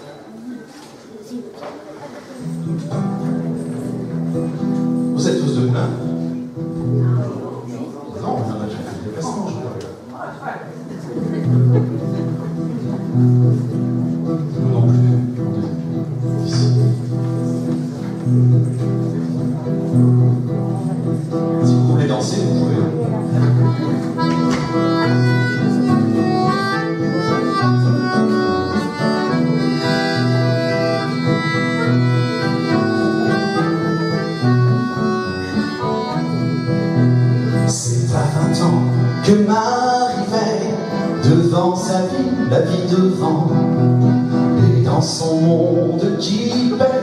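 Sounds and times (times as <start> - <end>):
acoustic guitar: 0.0 - 47.0
low accompaniment: 11.1 - 47.0
reedy melody: 11.9 - 47.0
man singing: 37.5 - 47.0.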